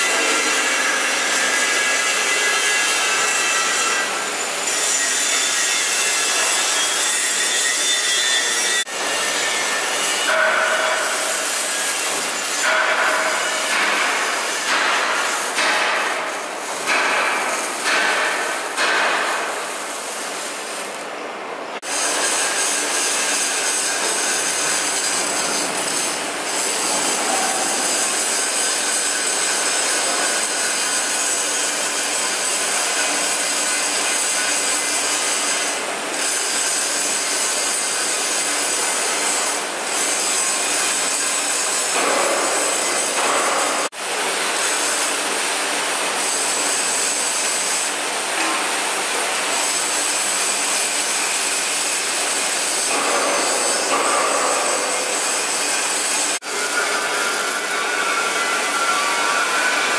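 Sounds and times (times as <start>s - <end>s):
arc welding noise: 0.0s - 59.9s
angle grinder grinding steel: 21.8s - 43.9s.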